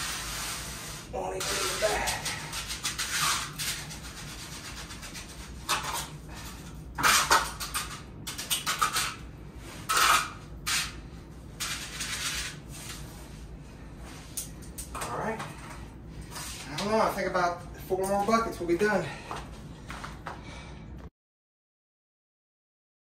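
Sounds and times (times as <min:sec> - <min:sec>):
trowel scraping wet concrete: 0:11.6 - 0:12.9.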